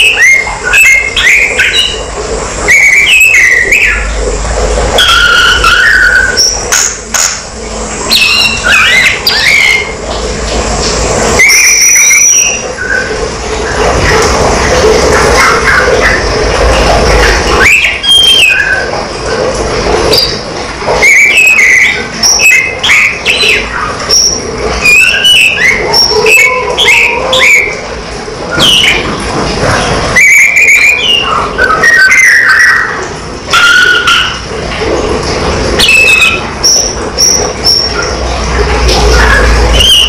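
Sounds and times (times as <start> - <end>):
bird whistling and chirping: 0.0 - 2.0, 2.7 - 4.1, 5.0 - 7.3, 8.1 - 9.9, 11.4 - 13.2, 17.6 - 18.9, 21.0 - 27.8, 28.5 - 29.1, 30.2 - 34.4, 35.8 - 38.1, 39.1 - 40.0.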